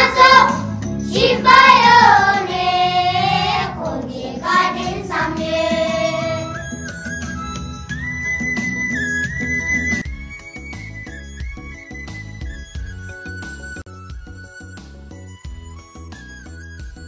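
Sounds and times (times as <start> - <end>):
child singing: 0.0 - 6.6
instrumental backing music: 0.0 - 17.0.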